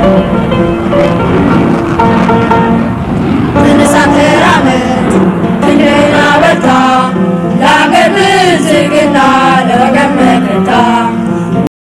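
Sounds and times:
music with singing voices: 3.5 - 11.7.

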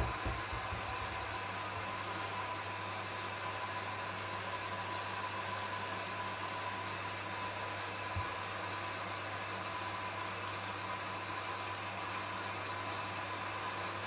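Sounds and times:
low thump: 0.0 - 1.0
washing machine humming: 0.0 - 14.0.

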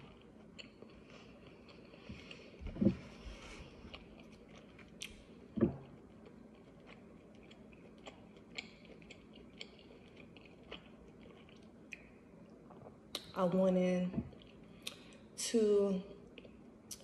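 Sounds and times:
person chewing lettuce: 0.0 - 13.3, 14.3 - 15.3.

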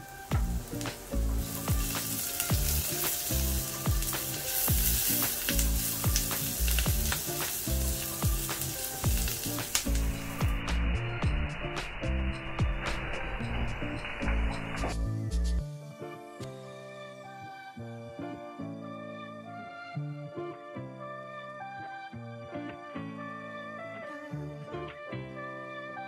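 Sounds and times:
food sizzling in a pan: 0.0 - 14.6
background music: 0.0 - 26.0.

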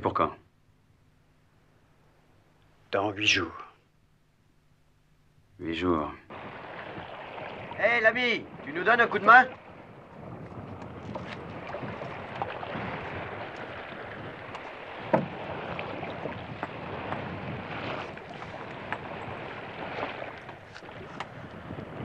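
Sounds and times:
harbour water washing: 6.3 - 22.0
fishing net knocks and rustling: 14.5 - 19.1.

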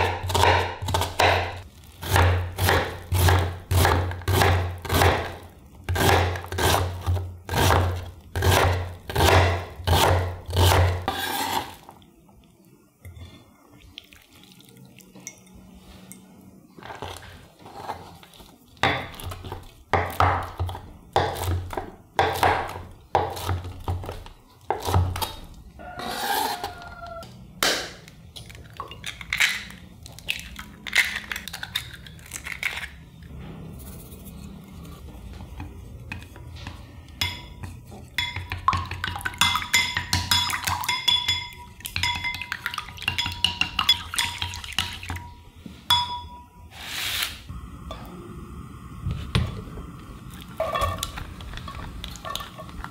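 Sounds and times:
eggs cracking: 26.6 - 33.2
glass bowls knocking: 37.2 - 45.0.

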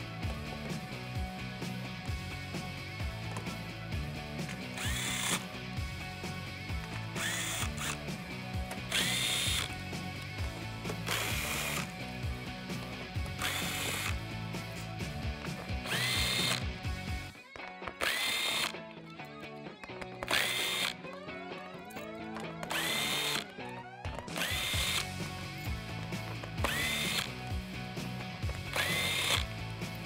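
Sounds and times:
background music: 0.0 - 30.0
cordless power tool whining: 4.5 - 5.5, 6.7 - 12.0, 12.9 - 17.3, 17.9 - 18.8, 20.2 - 21.1, 22.0 - 27.5, 28.4 - 29.6.

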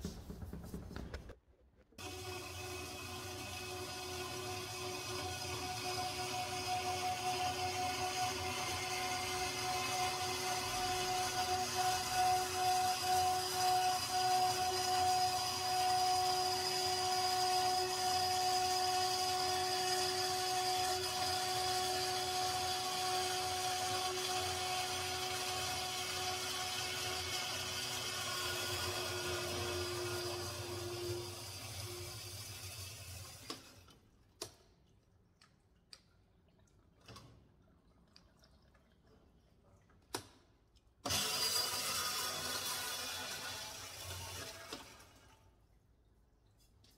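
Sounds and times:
metal-cutting bandsaw running: 2.0 - 33.2, 41.0 - 44.6
coolant flowing: 2.0 - 40.3, 40.9 - 45.8.

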